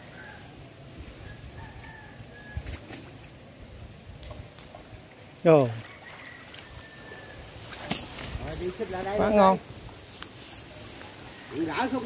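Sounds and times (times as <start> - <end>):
fish splashing in shallow water: 4.4 - 8.4.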